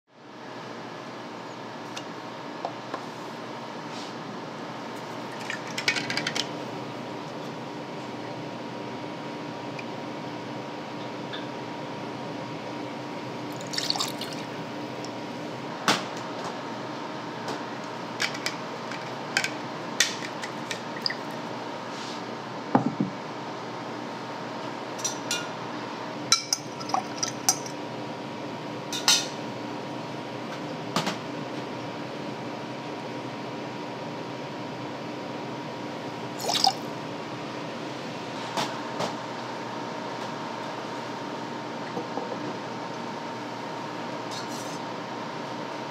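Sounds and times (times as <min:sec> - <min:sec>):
steady hum: 0:00.2 - 0:24.3
liquid poured into shaker: 0:13.6 - 0:14.5, 0:36.4 - 0:36.9.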